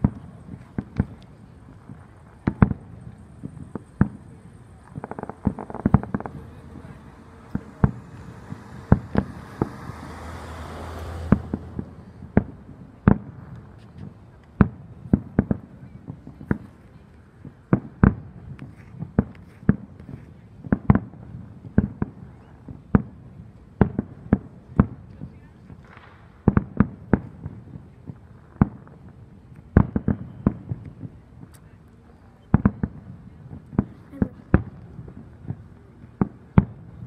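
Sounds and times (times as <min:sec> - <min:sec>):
fireworks hiss: 0:00.0 - 0:12.2
fireworks bangs: 0:00.0 - 0:31.8, 0:32.4 - 0:37.0.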